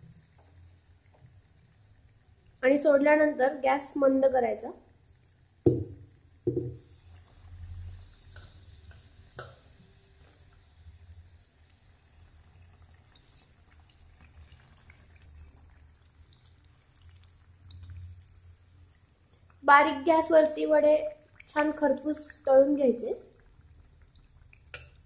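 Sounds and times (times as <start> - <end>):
food sizzling in hot oil: 5.1 - 22.6, 23.4 - 25.0
soft thumps: 5.7 - 6.8.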